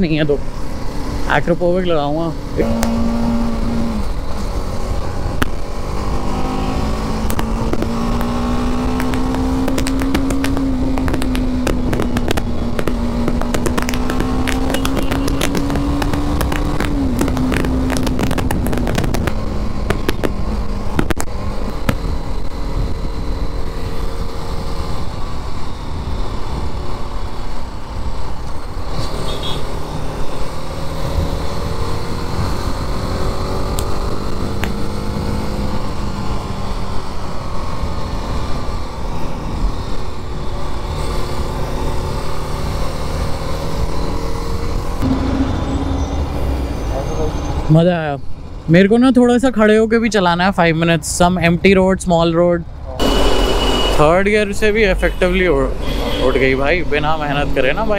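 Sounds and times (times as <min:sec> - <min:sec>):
motorcycle engine running: 0:02.4 - 0:26.0
sharp crackles: 0:04.0 - 0:23.0
wind rumble on microphone: 0:07.2 - 0:23.1.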